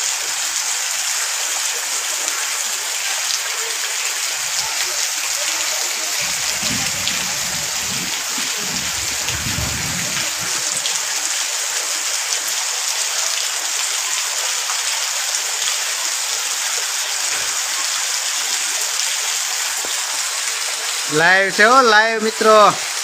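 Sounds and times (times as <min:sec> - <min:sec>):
heavy rain on foliage: 0:00.0 - 0:23.0
low rumbling: 0:06.2 - 0:10.9.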